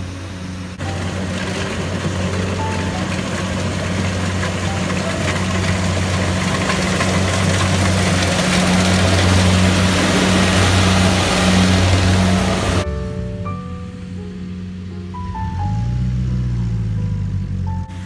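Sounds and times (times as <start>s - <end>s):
mechanical rush of threshing: 0.0s - 13.3s
combine harvester engine hum: 0.0s - 18.0s.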